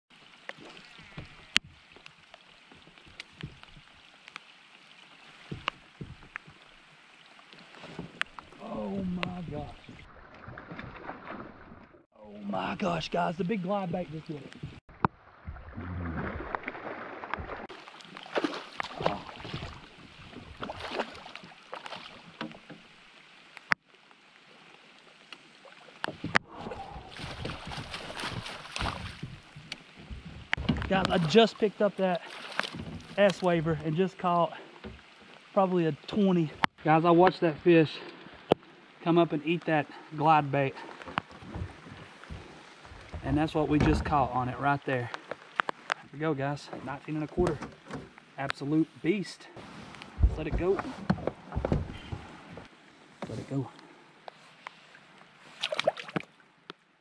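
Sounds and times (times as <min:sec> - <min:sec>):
rain falling on water: 0:00.1 - 0:11.1, 0:12.3 - 0:57.0
fish splashing in water: 0:15.1 - 0:22.4, 0:26.5 - 0:29.6, 0:55.6 - 0:56.3
dull knocks: 0:50.1 - 0:53.3.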